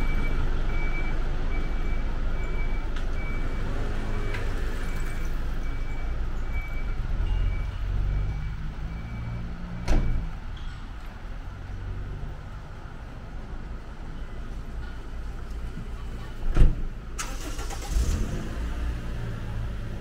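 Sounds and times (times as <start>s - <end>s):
reversing alarm beeping: 0.0s - 10.4s.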